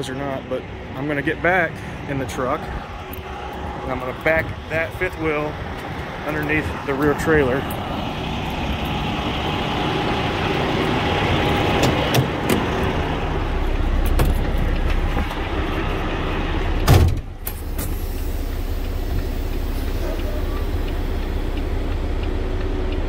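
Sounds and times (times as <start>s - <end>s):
diesel engine idling: 0.0s - 23.0s
truck door slamming: 11.5s - 13.0s, 14.0s - 15.4s, 16.8s - 18.0s.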